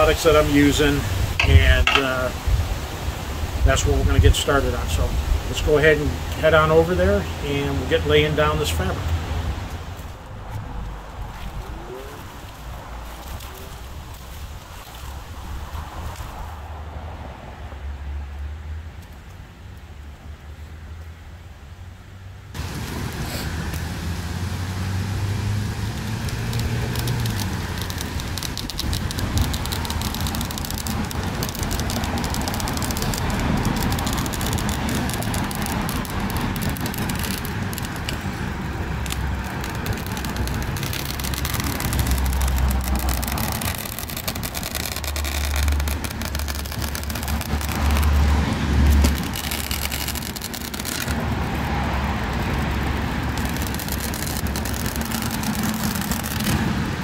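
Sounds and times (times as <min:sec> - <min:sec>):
fabric rustling and crinkling: 0:25.8 - 0:51.2.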